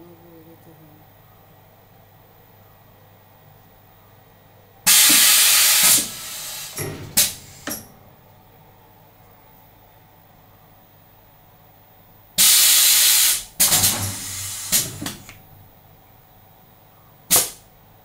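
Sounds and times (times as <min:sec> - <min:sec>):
compressed air hiss: 0:04.9 - 0:07.8, 0:12.4 - 0:15.3, 0:17.3 - 0:17.6
short sharp air bursts: 0:04.9 - 0:07.9, 0:12.4 - 0:15.3, 0:17.3 - 0:17.7.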